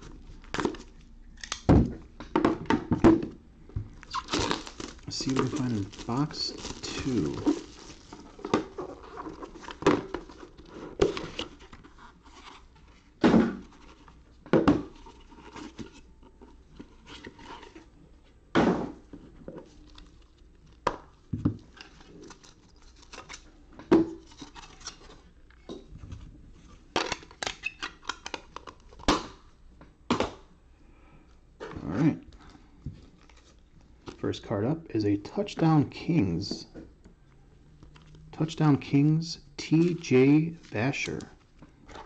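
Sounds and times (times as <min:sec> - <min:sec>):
packaging rustling and tearing: 0:04.0 - 0:12.7, 0:21.6 - 0:23.5.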